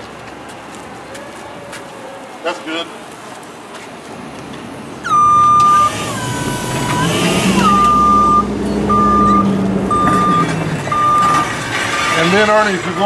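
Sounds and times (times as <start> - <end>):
forklift motor hum: 5.0 - 12.2
forklift warning beeper: 5.0 - 12.4.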